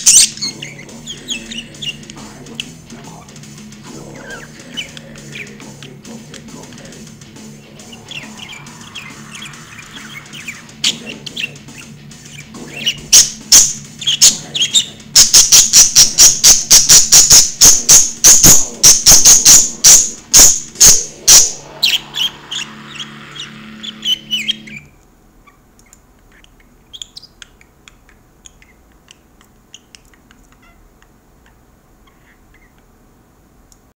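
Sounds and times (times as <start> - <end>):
metal music through a speaker: 0.0 - 24.8
steady low drone: 18.5 - 24.7.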